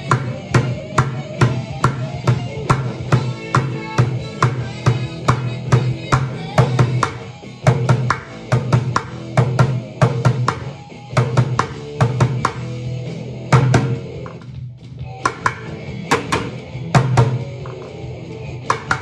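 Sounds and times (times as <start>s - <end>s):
drumsticks cracking on bucket rim: 15.2s - 18.0s, 18.7s - 19.0s.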